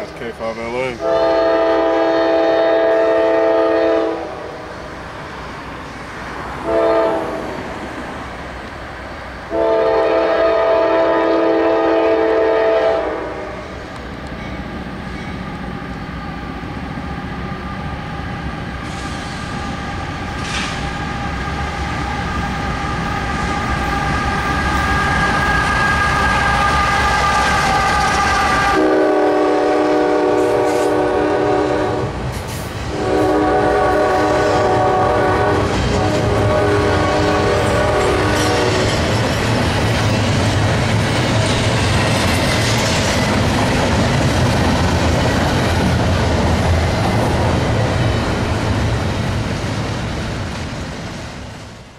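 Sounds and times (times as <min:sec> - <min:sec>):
locomotives and wheels rumbling: 0:00.0 - 0:51.9
train horn blasts: 0:01.0 - 0:04.7, 0:06.6 - 0:07.6, 0:09.5 - 0:13.8, 0:23.2 - 0:32.2, 0:32.9 - 0:39.0.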